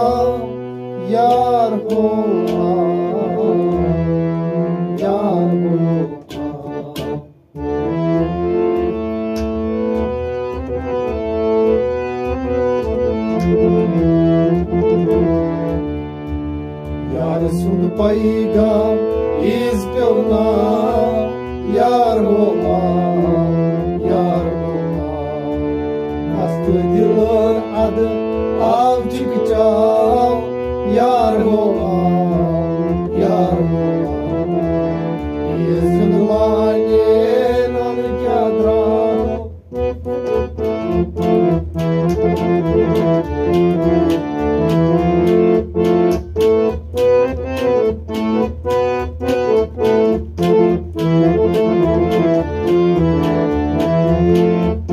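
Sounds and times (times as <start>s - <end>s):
man singing: 0.0s - 4.2s, 4.8s - 7.3s, 17.1s - 25.7s, 26.3s - 34.4s, 35.5s - 39.5s
harmonium chords: 0.0s - 54.9s.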